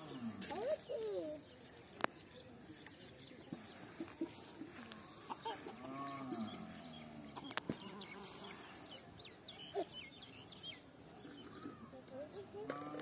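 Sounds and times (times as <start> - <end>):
small birds chirping: 0.0 - 13.0
chicken clucking: 3.5 - 6.2.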